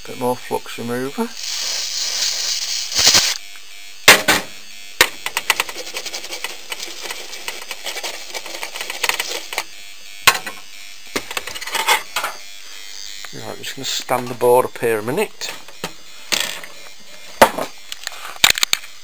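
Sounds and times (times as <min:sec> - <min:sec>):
spray can hiss: 0:01.3 - 0:03.4, 0:04.1 - 0:09.7
toothbrush scrubbing circuit board: 0:01.3 - 0:03.4, 0:05.1 - 0:09.7.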